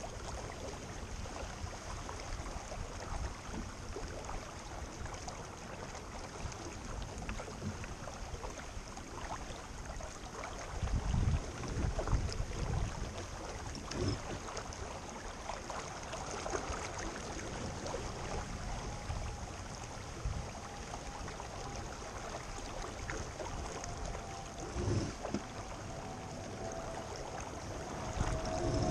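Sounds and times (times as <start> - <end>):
faint steady hum: 0.0 - 28.9
water noise: 0.0 - 28.9
wind gusts buffeting microphone: 27.7 - 28.9.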